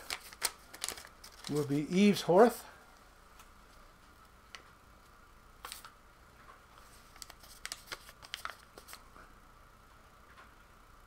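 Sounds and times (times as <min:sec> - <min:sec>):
paper crinkling and rustling: 0:00.0 - 0:01.9, 0:05.6 - 0:06.0, 0:06.8 - 0:09.1.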